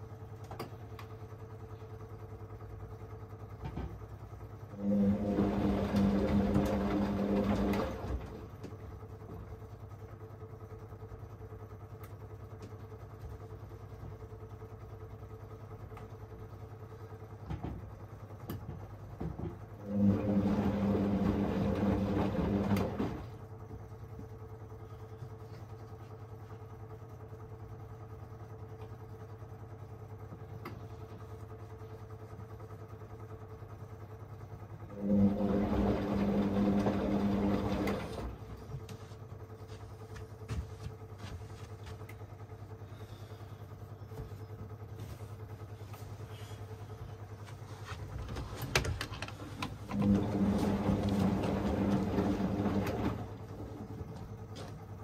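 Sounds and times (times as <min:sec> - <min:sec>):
washing machine drum turning: 0:04.8 - 0:08.8, 0:17.6 - 0:23.4, 0:35.0 - 0:38.5, 0:48.1 - 0:55.0.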